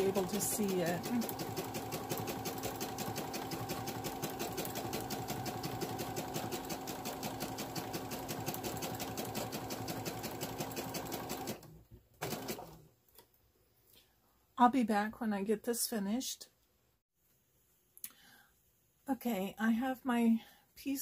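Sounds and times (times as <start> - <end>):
sewing machine stitching: 0.0 - 12.8.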